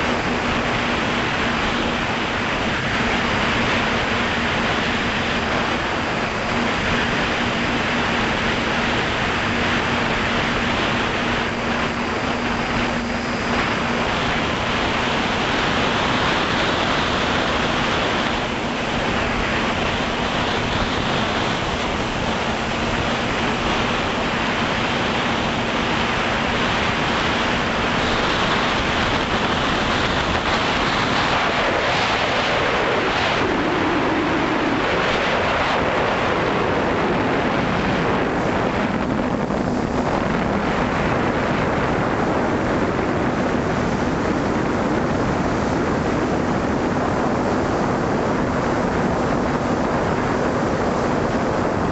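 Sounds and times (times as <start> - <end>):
drone motors humming: 0.0 - 31.2
wind noise on microphone: 0.0 - 51.9.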